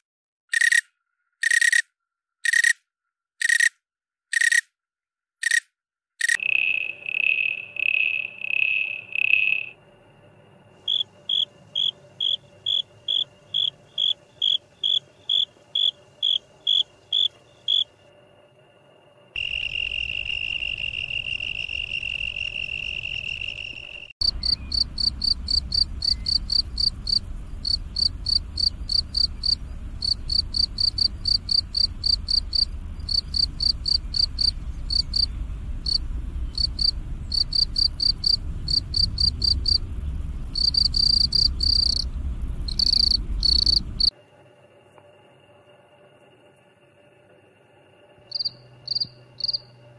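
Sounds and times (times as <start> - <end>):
crickets chirping: 6.2 - 49.9
high cricket trill: 6.2 - 49.9
low rumble: 24.2 - 44.1.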